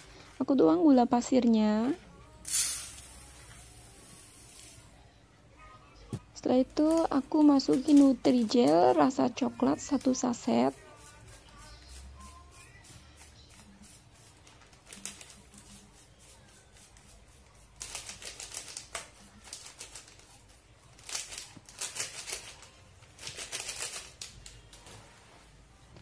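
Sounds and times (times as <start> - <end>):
plastic sachet crinkling: 6.7 - 9.2, 14.5 - 15.9, 17.8 - 24.8.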